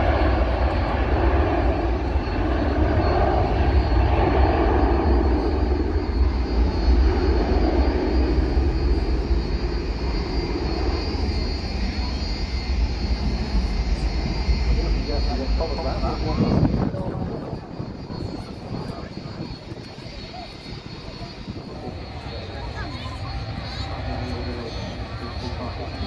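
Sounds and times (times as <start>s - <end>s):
jet engines roaring: 0.0s - 26.0s
wind buffeting microphone: 13.2s - 24.0s.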